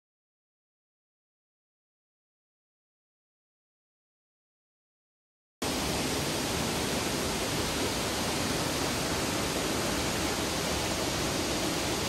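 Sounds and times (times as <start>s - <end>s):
waterfall rushing: 5.6s - 12.0s.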